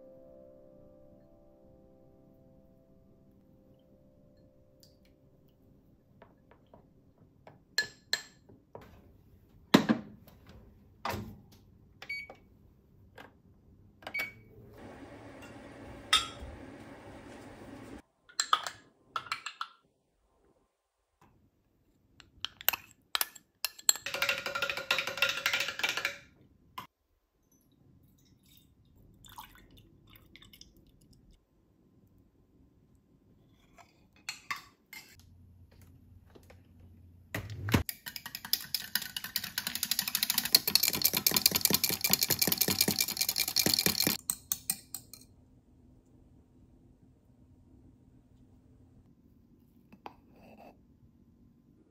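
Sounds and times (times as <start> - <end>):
stirring in glass jug: 37.9 - 44.9
metal spoon clinking on glass: 40.4 - 45.3.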